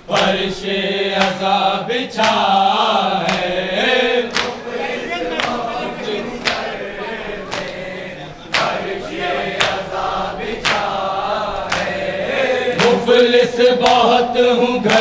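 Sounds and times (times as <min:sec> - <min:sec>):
men chanting in chorus: 0:00.0 - 0:15.0
hands slapping chests: 0:00.1 - 0:00.4, 0:01.2 - 0:01.6, 0:02.2 - 0:02.6, 0:03.2 - 0:03.6, 0:04.2 - 0:06.8, 0:07.4 - 0:07.9, 0:08.5 - 0:09.9, 0:10.6 - 0:11.0, 0:11.6 - 0:12.1, 0:12.8 - 0:13.1, 0:13.8 - 0:14.1.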